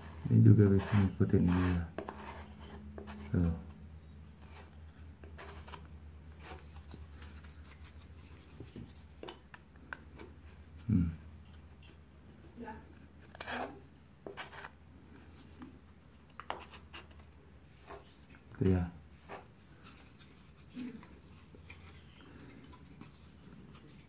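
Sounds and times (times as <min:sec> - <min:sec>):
putty knife scraping plaster: 0:00.7 - 0:03.2, 0:13.3 - 0:14.8.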